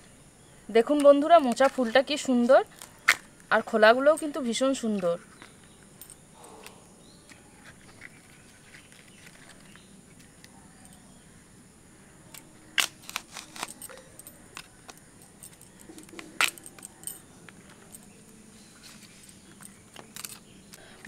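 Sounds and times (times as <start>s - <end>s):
banana flower snapping: 12.4s - 14.0s.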